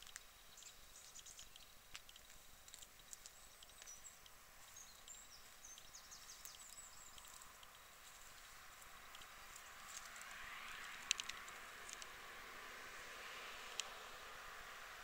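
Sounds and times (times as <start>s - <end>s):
small clicks: 0.0s - 4.4s, 9.1s - 9.3s, 10.0s - 12.2s
high bird chirps: 0.0s - 9.3s
faint outdoor hiss: 0.0s - 15.0s.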